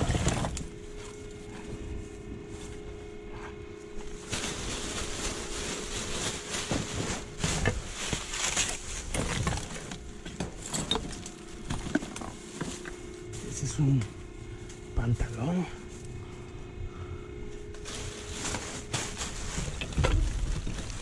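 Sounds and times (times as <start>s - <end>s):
items knocking and clattering: 0.0s - 0.7s, 6.6s - 13.0s, 18.5s - 21.0s
plastic bags rustling: 0.0s - 16.3s, 17.4s - 21.0s.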